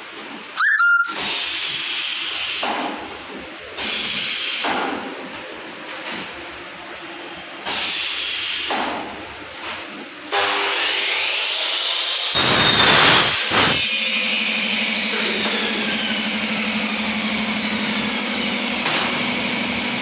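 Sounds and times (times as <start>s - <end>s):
rising squeal: 0.6s - 1.2s
compressed air bursts: 1.2s - 3.0s, 3.8s - 5.0s, 7.6s - 9.0s, 12.3s - 13.9s.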